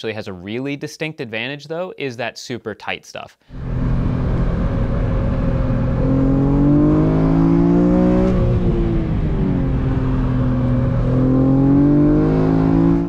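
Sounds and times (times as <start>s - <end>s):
car engine revving: 3.5s - 13.0s.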